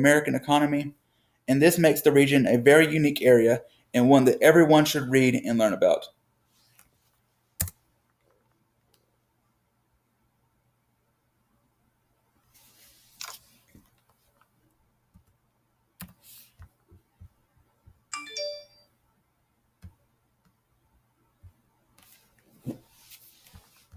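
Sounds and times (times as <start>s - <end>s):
soft rustling: 12.4s - 14.6s, 21.4s - 23.9s
computer mouse clicks: 16.0s - 17.3s
electronic chime: 18.1s - 18.9s.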